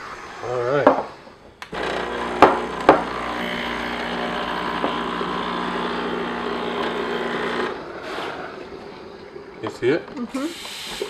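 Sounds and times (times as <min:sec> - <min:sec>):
steam wand hissing: 0:10.3 - 0:11.0.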